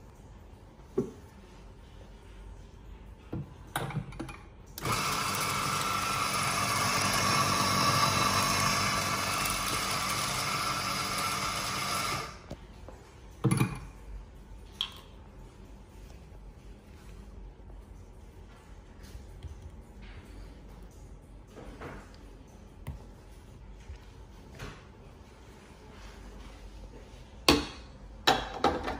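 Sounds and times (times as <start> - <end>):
coffee grinder whirring: 4.8 - 12.5.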